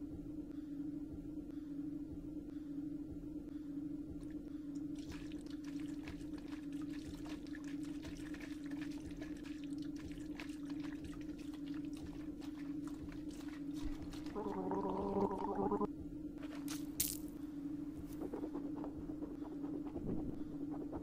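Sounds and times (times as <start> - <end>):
steady low hum: 0.0 - 21.0
water pouring and gargling: 4.2 - 15.9.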